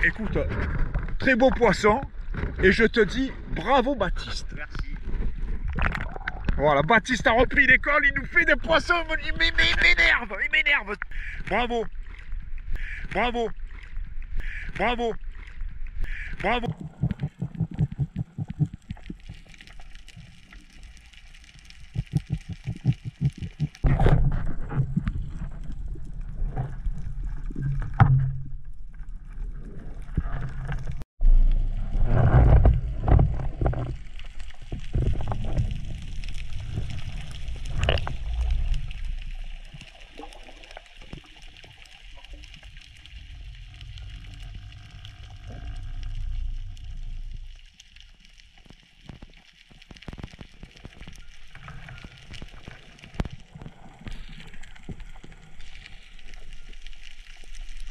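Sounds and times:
muffled underwater water rumble: 0:00.0 - 0:57.9.

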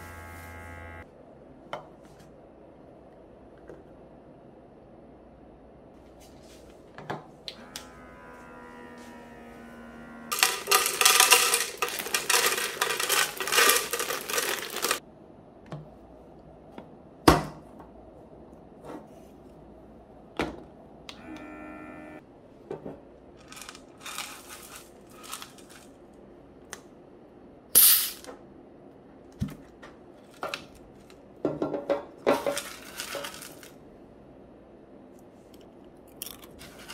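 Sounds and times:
dry pasta rattling: 0:10.3 - 0:15.0, 0:23.4 - 0:26.0, 0:32.3 - 0:33.8.

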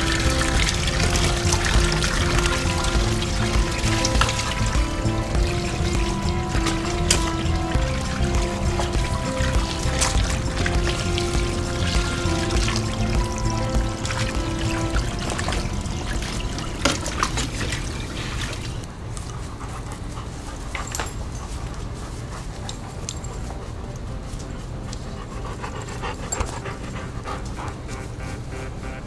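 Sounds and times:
clicks and scuffles of playing dogs: 0:00.0 - 0:28.5
dogs panting: 0:00.0 - 0:29.0.

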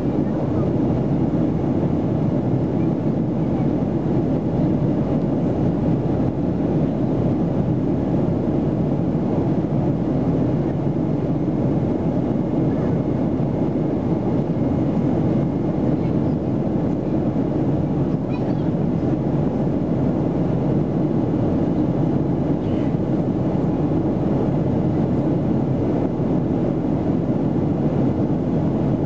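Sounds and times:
aircraft cabin engine roar: 0:00.0 - 0:29.0.

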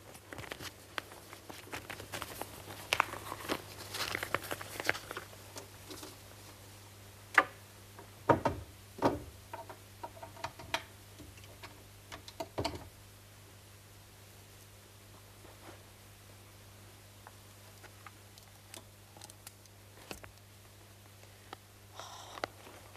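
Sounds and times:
paper rustling: 0:00.0 - 0:06.2
objects knocking in wooden cabinet: 0:08.3 - 0:09.3.

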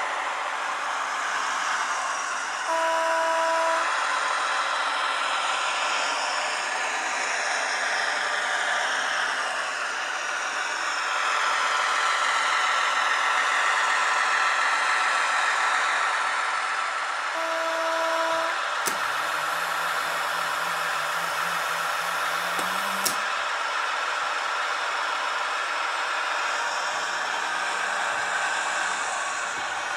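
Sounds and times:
low diesel engine drone: 0:00.0 - 0:29.9
model train motor and track noise: 0:00.0 - 0:29.9
model train horn toot: 0:02.6 - 0:04.0, 0:17.3 - 0:23.2
sharp clicks: 0:18.8 - 0:19.2, 0:22.5 - 0:23.3.

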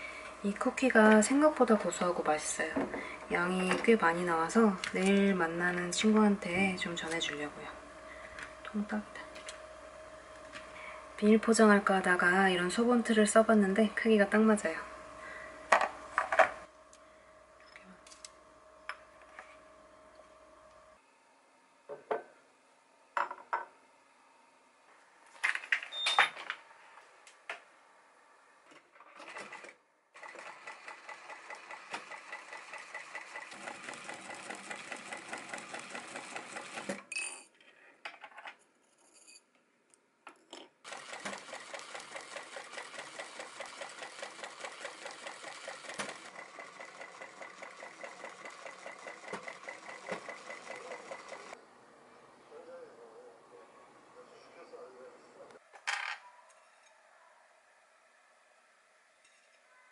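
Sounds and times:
sewing machine stitching: 0:29.1 - 0:37.1, 0:40.8 - 0:51.6.

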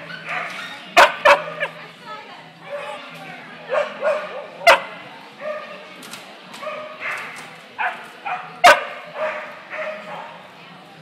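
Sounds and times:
dogs barking: 0:00.0 - 0:01.8, 0:03.6 - 0:05.9, 0:06.6 - 0:10.5
people talking: 0:00.0 - 0:11.0.

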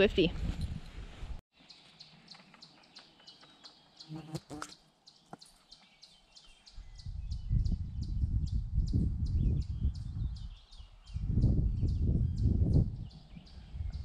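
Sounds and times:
wind buffeting microphone: 0:00.0 - 0:01.4, 0:06.6 - 0:14.0.

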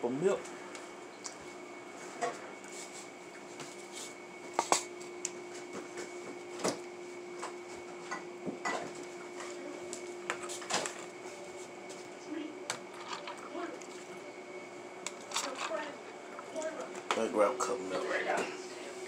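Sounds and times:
faint steady hum: 0:00.0 - 0:19.0
dishes clicking and knocking: 0:08.1 - 0:09.0.

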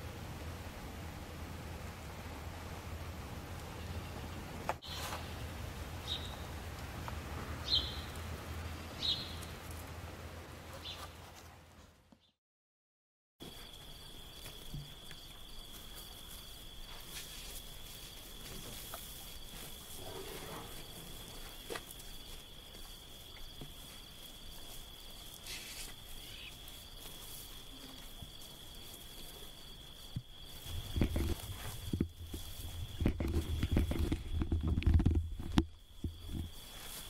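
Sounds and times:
open-air ambience: 0:00.0 - 0:12.4, 0:13.4 - 0:37.0
faint pulsing insect call: 0:13.4 - 0:37.0
high-pitched insect trill: 0:13.5 - 0:34.7.

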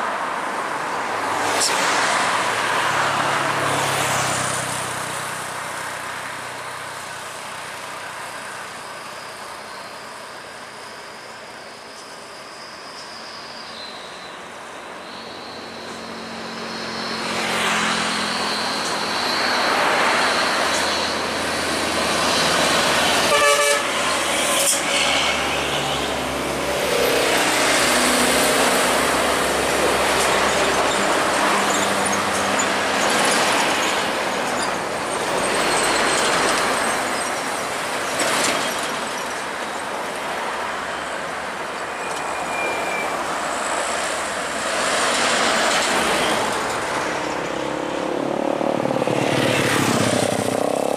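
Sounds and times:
heavy trucks passing: 0:00.0 - 0:13.4, 0:14.4 - 0:50.9
short horn toot: 0:23.3 - 0:24.0.

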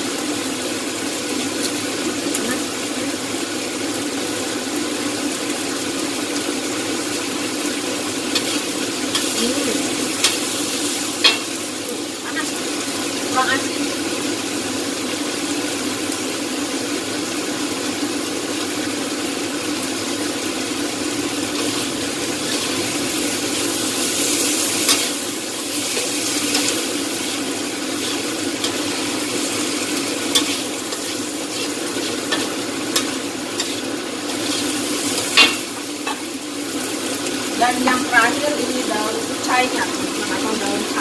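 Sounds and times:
food sizzling in a wok: 0:00.0 - 0:41.0
metal spatula scraping a pan: 0:28.0 - 0:36.2.

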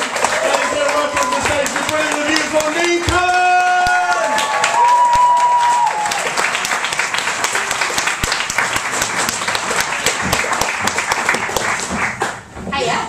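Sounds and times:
audience applauding: 0:00.0 - 0:12.5
long held shout: 0:03.3 - 0:06.2.

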